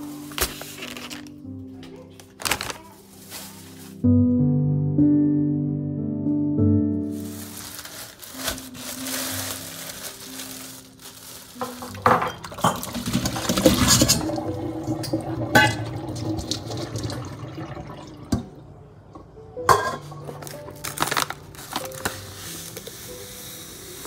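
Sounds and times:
tap water running into colander: 0:11.6 - 0:18.6.

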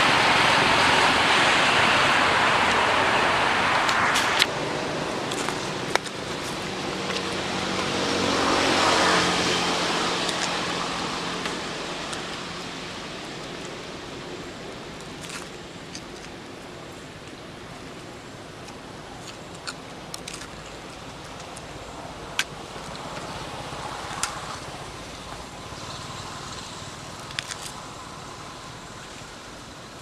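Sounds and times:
motor vehicle passing by: 0:00.0 - 0:15.6
outdoor background noise: 0:00.0 - 0:30.0.

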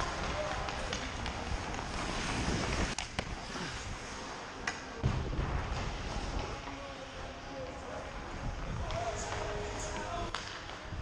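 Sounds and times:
sharp cracks of sticks and pucks: 0:00.0 - 0:03.9, 0:04.6 - 0:05.0, 0:10.0 - 0:11.0
skates scraping on ice: 0:00.0 - 0:11.0.

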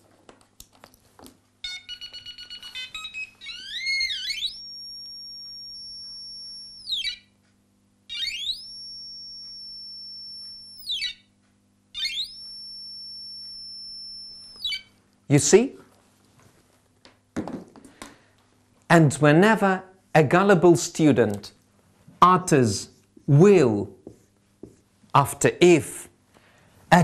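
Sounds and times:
metal detector beeping: 0:01.6 - 0:07.4, 0:08.1 - 0:11.3, 0:12.0 - 0:15.0.

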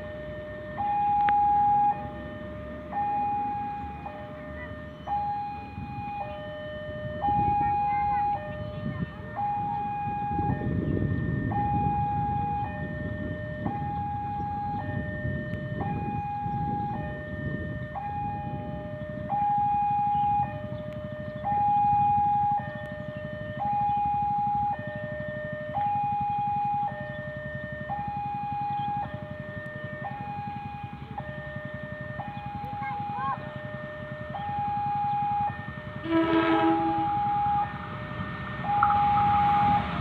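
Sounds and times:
level crossing alarm two-tone: 0:00.8 - 0:02.1, 0:29.9 - 0:40.0.

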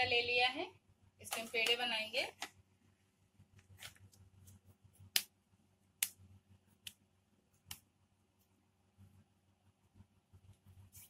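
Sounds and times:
faint low hum: 0:02.5 - 0:11.0
hands slapping dough: 0:05.0 - 0:06.2.

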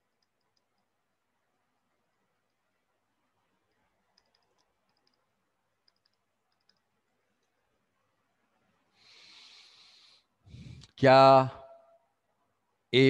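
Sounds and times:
faint hiss: 0:08.2 - 0:11.5.

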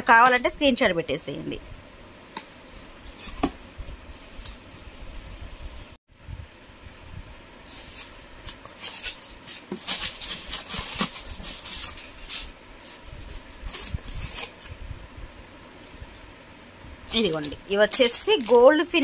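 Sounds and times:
foam sheets squeaking and scraping: 0:07.7 - 0:14.7.

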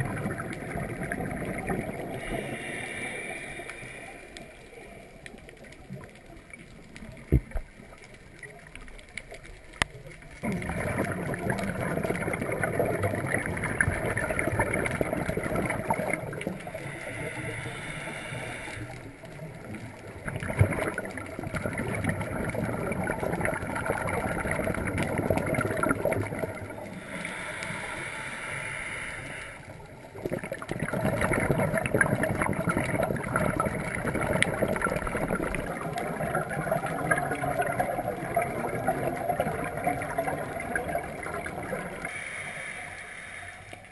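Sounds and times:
exhaled bubbles gurgling: 0:00.0 - 0:42.8
regulator inhalations: 0:02.2 - 0:05.1, 0:16.8 - 0:19.2, 0:26.9 - 0:29.9, 0:42.0 - 0:43.9.

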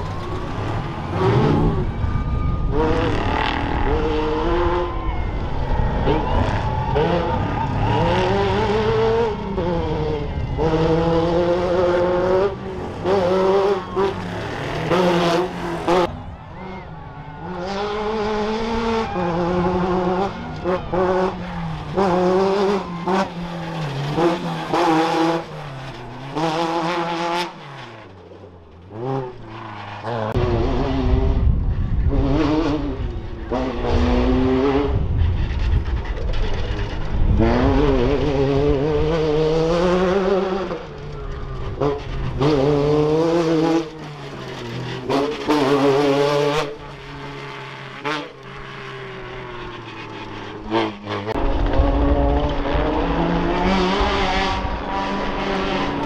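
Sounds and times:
race car engines revving: 0:00.0 - 0:56.0
heavy low rumble: 0:30.4 - 0:38.8.

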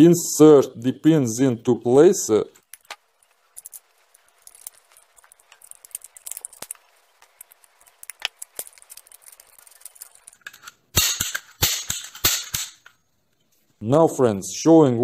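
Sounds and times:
small metal clicks and taps: 0:02.6 - 0:13.4
loud sharp snaps: 0:11.0 - 0:12.9.

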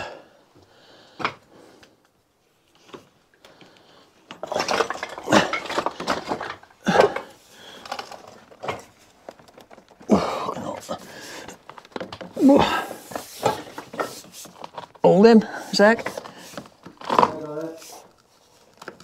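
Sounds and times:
metal objects clinking and scraping: 0:04.2 - 0:19.0
clattering: 0:04.3 - 0:15.0.

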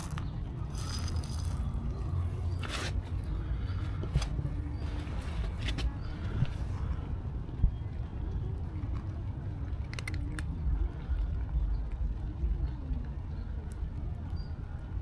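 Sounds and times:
cat crunching dry kibble: 0:00.0 - 0:01.8, 0:08.8 - 0:12.1
low outdoor rumble: 0:00.0 - 0:15.0.

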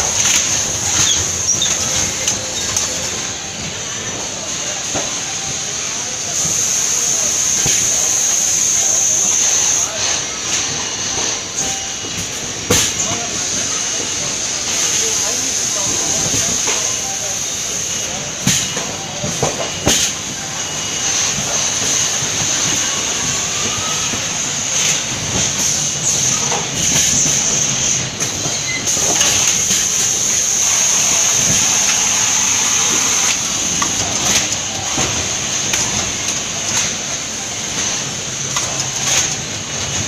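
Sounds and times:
high-pitched hiss: 0:00.0 - 0:40.0
roller conveyor rattling: 0:00.0 - 0:40.0.

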